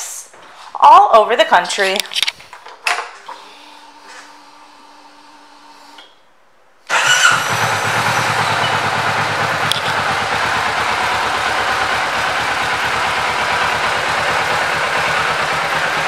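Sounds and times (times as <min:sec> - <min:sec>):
motorcycle engine starting and idling: 0:03.0 - 0:06.0, 0:06.9 - 0:16.0.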